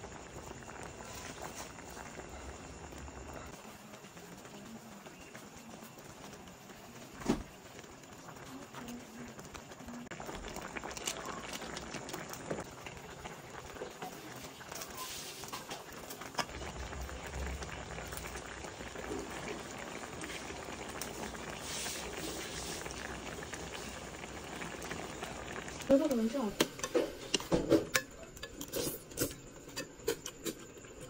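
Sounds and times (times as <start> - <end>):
broth bubbling and popping: 0.0 - 31.0
spatula stirring greens: 20.2 - 23.0.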